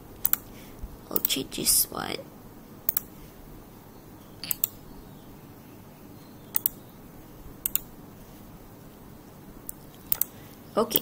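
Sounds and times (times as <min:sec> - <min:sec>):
faint background hiss: 0:00.0 - 0:11.0
computer mouse double clicks: 0:06.5 - 0:06.8, 0:07.6 - 0:07.9.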